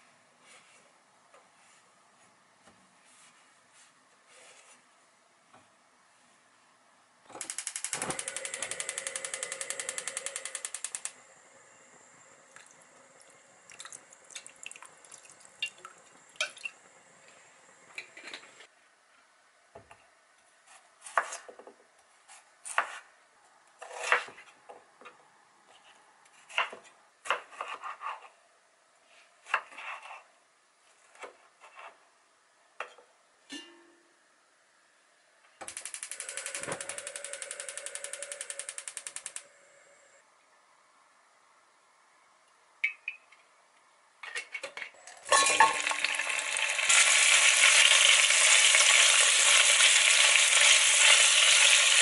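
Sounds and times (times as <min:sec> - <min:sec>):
gas hob igniter clicking: 0:07.4 - 0:11.2.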